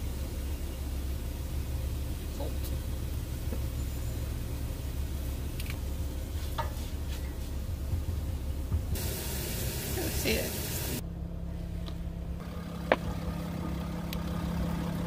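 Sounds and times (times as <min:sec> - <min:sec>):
low mechanical hum: 0:00.0 - 0:15.0
hiss: 0:08.9 - 0:11.0.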